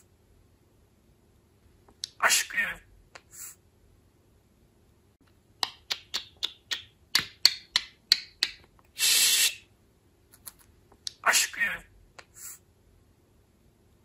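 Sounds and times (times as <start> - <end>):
budgerigar clicking chirps: 5.6 - 8.6
short hissing burst: 9.0 - 9.7.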